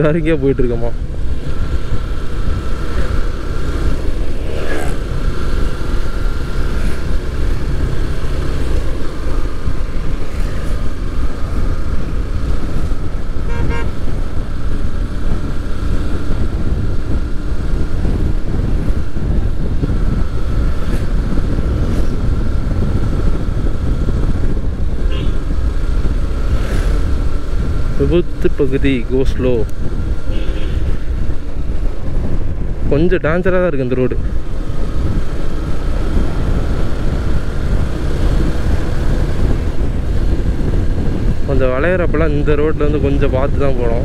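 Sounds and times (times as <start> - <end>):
wind rush on microphone: 0.0 - 44.0
motorcycle engine running: 0.9 - 32.9
pulsing horn-like tone: 13.5 - 14.0, 25.1 - 25.4.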